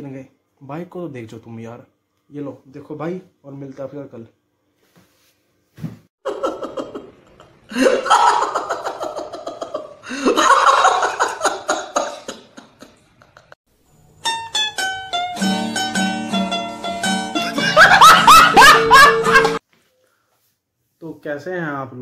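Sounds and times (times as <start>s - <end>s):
plucked-string music: 14.1s - 19.6s.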